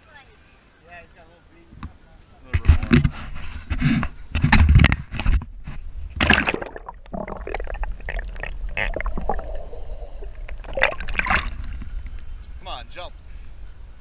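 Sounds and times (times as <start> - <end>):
muffled underwater churning: 6.1 - 12.2
water splashing and gurgling: 6.2 - 11.8.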